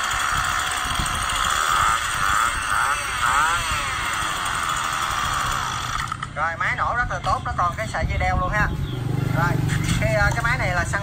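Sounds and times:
brush cutter engine running: 0:00.0 - 0:06.4.

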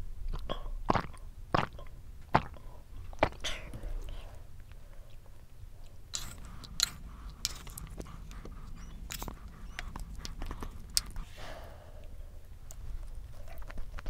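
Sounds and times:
chewing and biting: 0:05.8 - 0:11.3.

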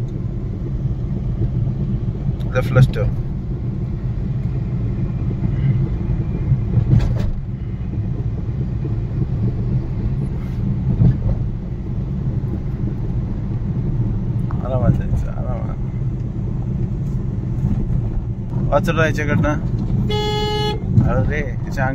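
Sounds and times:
car engine and tyres rumbling: 0:00.0 - 0:21.9.

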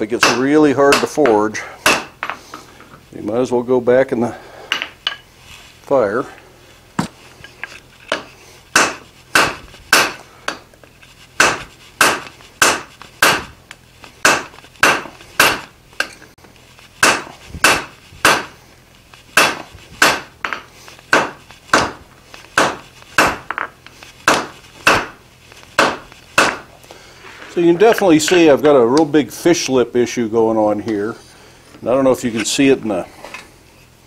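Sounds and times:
hammer striking hot steel on anvil: 0:00.2 - 0:02.4, 0:08.1 - 0:10.7, 0:11.4 - 0:13.5, 0:14.2 - 0:16.2, 0:17.0 - 0:18.6, 0:19.4 - 0:23.7, 0:24.3 - 0:25.2, 0:25.8 - 0:26.7.

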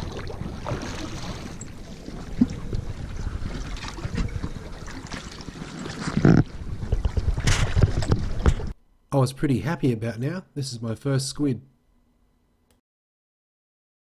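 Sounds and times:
water lapping against boat hull: 0:00.0 - 0:08.8
wind buffeting microphone: 0:00.0 - 0:08.8.

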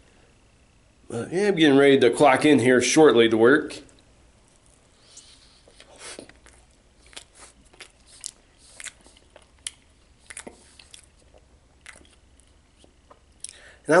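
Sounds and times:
man chewing with mouth clicks: 0:03.9 - 0:13.7.

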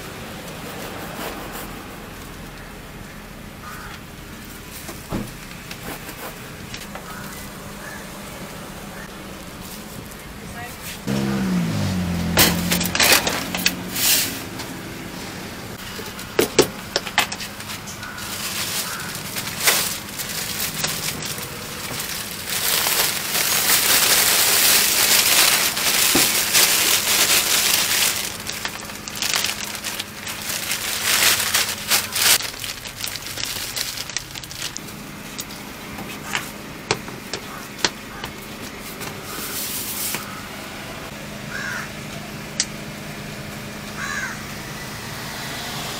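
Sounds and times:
plastic tubs clattering on steel: 0:12.2 - 0:14.7, 0:15.8 - 0:40.2
plastic bag rustling: 0:15.8 - 0:40.2.

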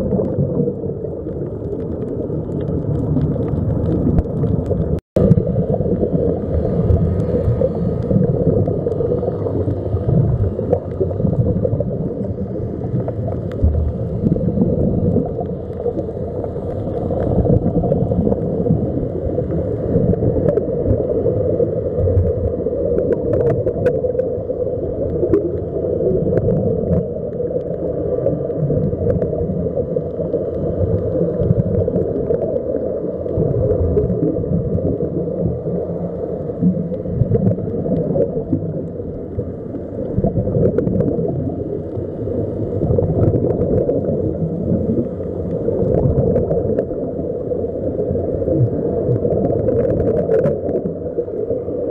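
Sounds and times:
air bubbling underwater: 0:00.0 - 0:51.9
muffled underwater rumble: 0:00.0 - 0:51.9
faint clicks: 0:12.9 - 0:14.4.

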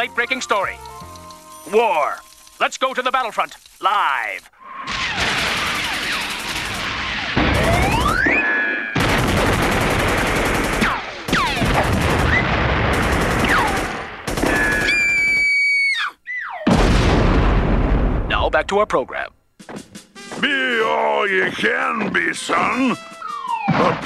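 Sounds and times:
explosions: 0:04.8 - 0:14.6, 0:16.7 - 0:18.7
cartoon gunfire: 0:04.9 - 0:15.3
whistles of falling shells: 0:07.5 - 0:09.0, 0:14.4 - 0:15.9.

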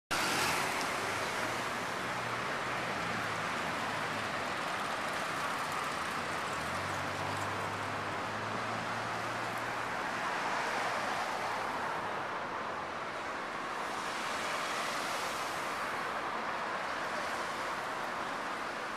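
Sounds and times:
street traffic: 0:00.1 - 0:18.9.

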